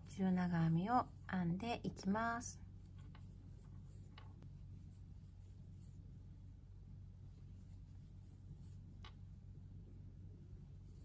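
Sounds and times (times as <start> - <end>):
low hum: 0.0 - 11.0
crochet hook pulling yarn: 2.6 - 6.2.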